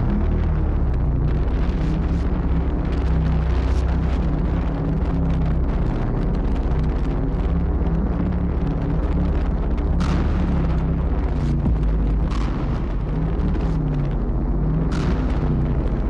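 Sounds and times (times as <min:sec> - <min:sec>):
wind buffeting microphone: 0:08.4 - 0:16.0.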